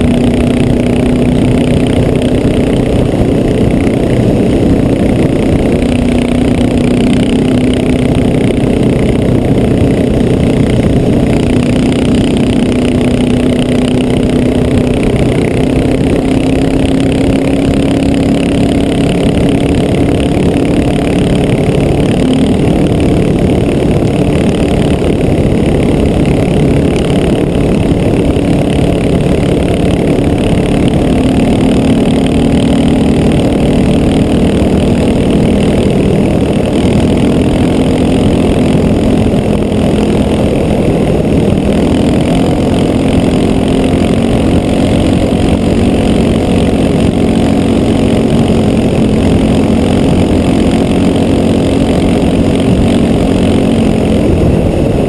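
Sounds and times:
motorcycle engine cruising: 0.0 - 55.0
wind and road rush: 0.0 - 55.0.

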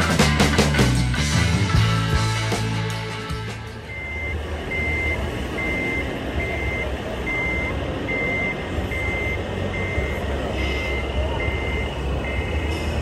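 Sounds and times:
continuous low rumble: 0.0 - 13.0
high reversing beeps: 3.7 - 13.0.

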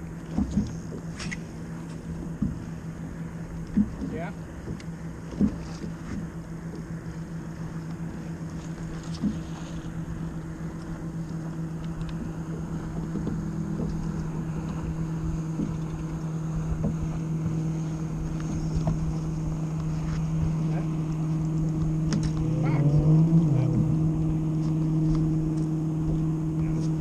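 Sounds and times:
boat motor humming: 0.0 - 27.0
water noise: 0.0 - 27.0
wind: 0.0 - 27.0
faint clicks: 11.8 - 12.2.

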